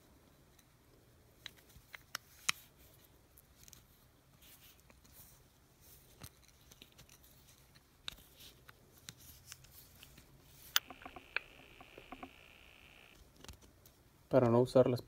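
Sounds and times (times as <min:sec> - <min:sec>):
sharp metal clicks: 0:10.8 - 0:13.2.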